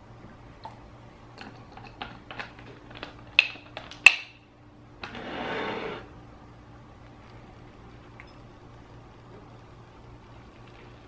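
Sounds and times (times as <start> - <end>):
bowl scraping on table: 5.0 - 6.1.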